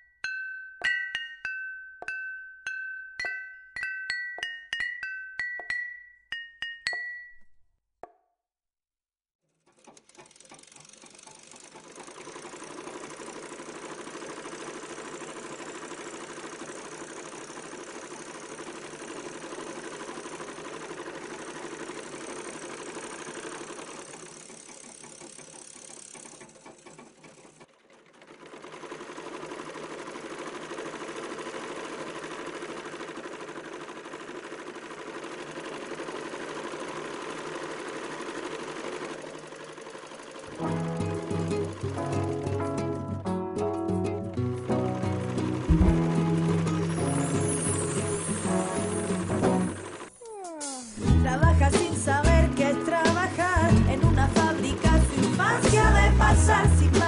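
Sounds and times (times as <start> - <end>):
tinkling chime notes: 0.0 - 7.5, 46.8 - 49.3
sewing machines rattling hum: 9.5 - 43.0, 44.3 - 57.0.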